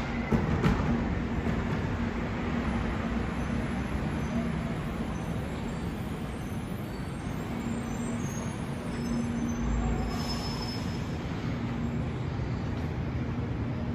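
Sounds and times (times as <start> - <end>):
tram rumbling and humming: 0.0 - 13.9.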